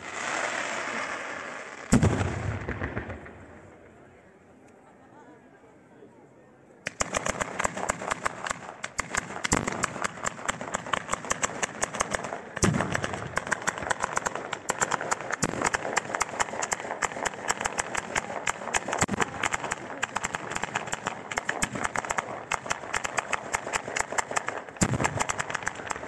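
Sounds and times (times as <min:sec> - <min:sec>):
firecracker bangs: 0:00.0 - 0:03.6, 0:06.9 - 0:26.0
deep firework booms: 0:00.0 - 0:03.8, 0:09.0 - 0:26.0.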